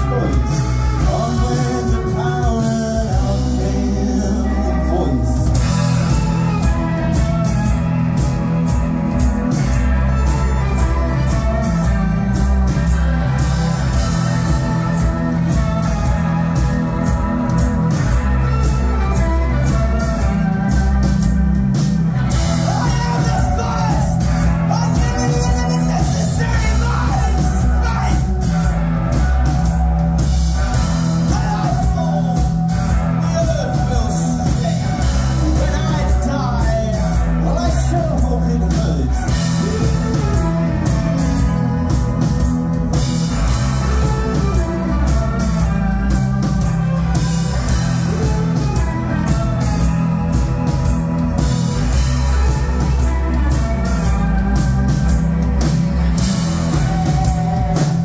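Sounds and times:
man singing: 0.0 - 6.2, 22.3 - 28.7, 31.2 - 45.7
rock band playing: 0.0 - 58.0.

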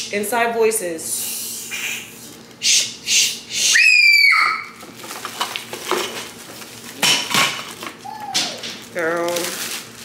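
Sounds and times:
child squealing: 3.7 - 4.8, 8.0 - 8.6.

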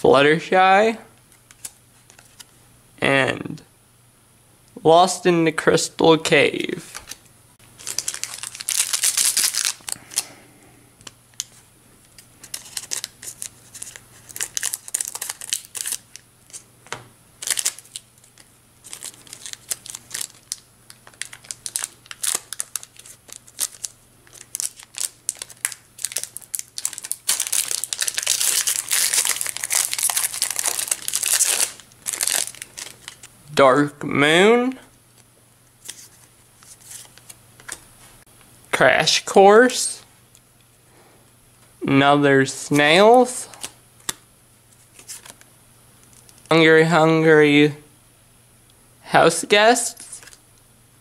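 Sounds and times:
foil wrapper crinkling: 6.9 - 10.4, 11.0 - 16.6, 17.4 - 33.3, 44.8 - 45.4.

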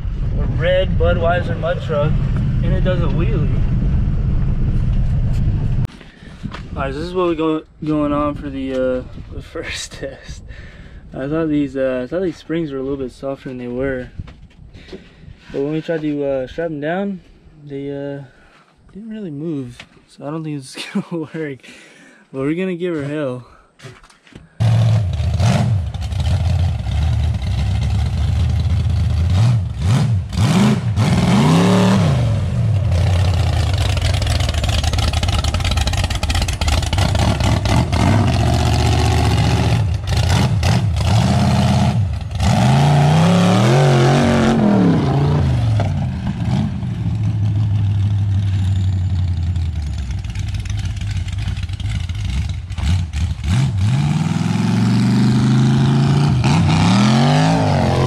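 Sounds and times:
truck engine revving: 24.6 - 58.0.

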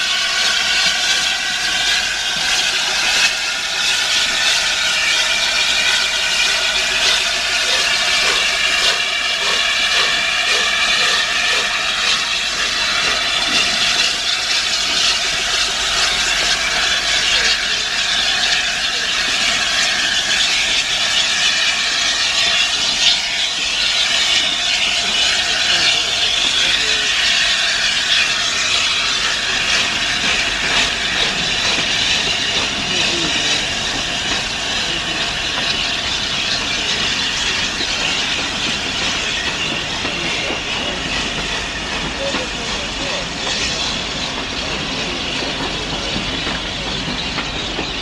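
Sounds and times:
loud hiss of steam: 0.0 - 48.0
steam locomotive moving: 0.0 - 48.0.

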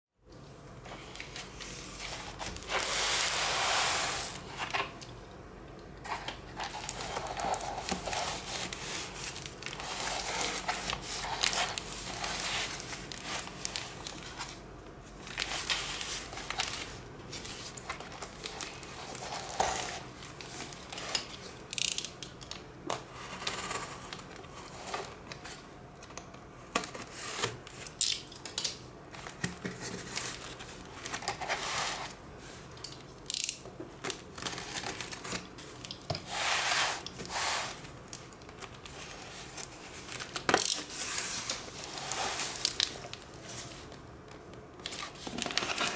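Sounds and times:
rustling cardboard and tape: 0.8 - 5.0, 6.0 - 22.4, 26.7 - 45.9.

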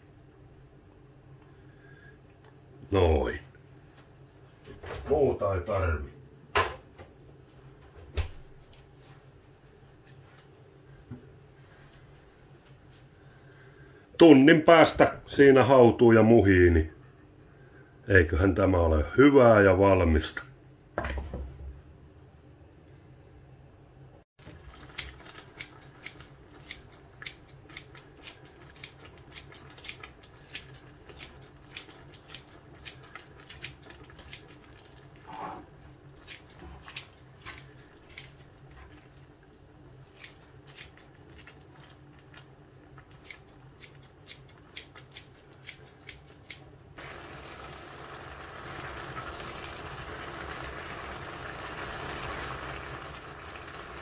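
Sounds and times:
stew simmering with bubbling hiss: 24.4 - 54.0
scissors snipping in a pan: 43.2 - 46.7.

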